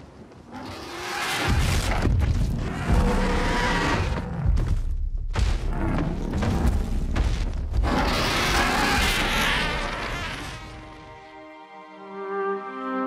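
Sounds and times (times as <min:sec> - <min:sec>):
dragon rumbles and growls: 0:00.4 - 0:10.9
orchestral music: 0:10.3 - 0:13.0.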